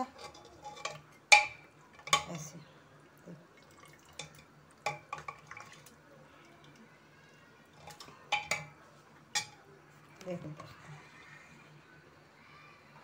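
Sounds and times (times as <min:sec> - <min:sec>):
liquid sloshing: 0:03.6 - 0:06.0
metal ladle clinking in pot: 0:09.3 - 0:09.6.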